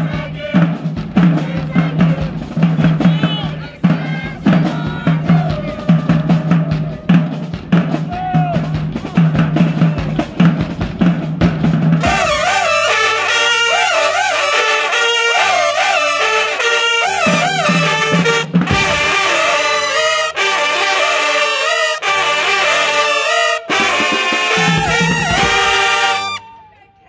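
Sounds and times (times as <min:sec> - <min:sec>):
drums: 0:00.0 - 0:26.7
marching band playing: 0:00.0 - 0:26.9
horn section melody: 0:12.0 - 0:26.7.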